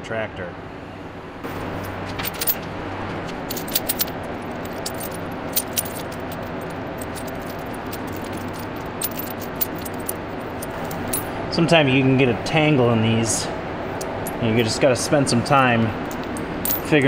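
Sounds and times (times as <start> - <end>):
background hum: 0.0 - 17.0
steel chains clinking: 1.5 - 11.3, 16.0 - 17.0.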